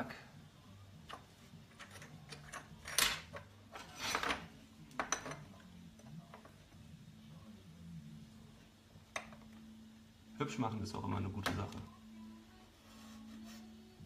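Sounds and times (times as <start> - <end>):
metal scraping on workbench: 3.7 - 4.5.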